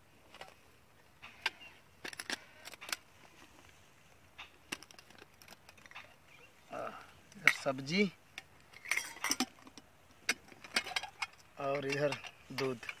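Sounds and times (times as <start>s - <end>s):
metal lids clinking: 7.3s - 7.7s, 8.4s - 13.0s.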